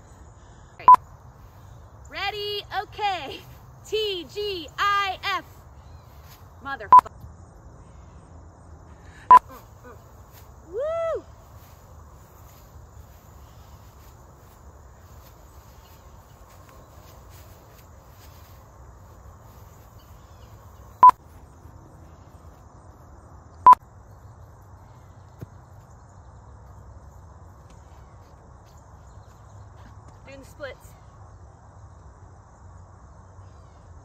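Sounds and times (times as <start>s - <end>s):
insects chirping in grass: 0.0s - 34.0s
woman cheering: 10.6s - 11.4s.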